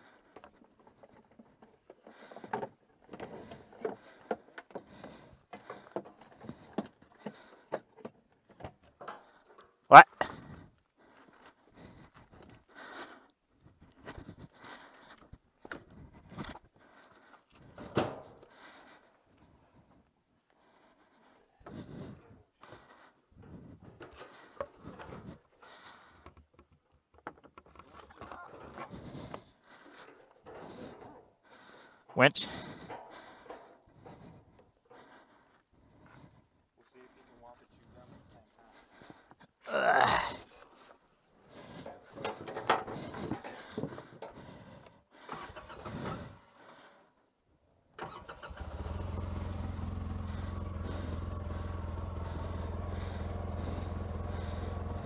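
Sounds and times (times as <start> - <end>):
heavy breathing: 0.0 - 8.2, 9.0 - 26.5, 28.2 - 47.4, 48.0 - 55.0.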